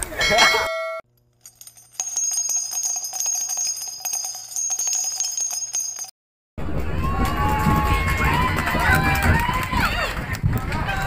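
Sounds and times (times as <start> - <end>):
high ringing tone: 0.2 - 6.1
jingling bells: 0.2 - 6.2
crowd noise: 6.6 - 11.0.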